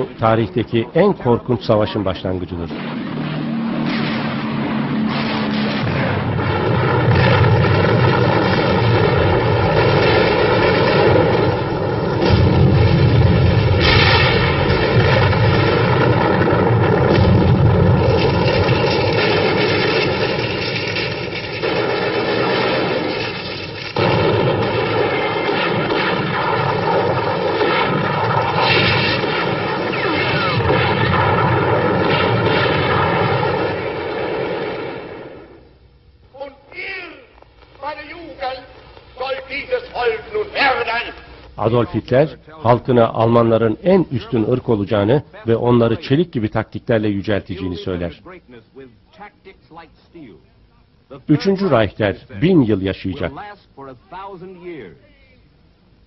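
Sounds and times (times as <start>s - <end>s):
propeller aircraft engines droning: 0.0s - 13.8s.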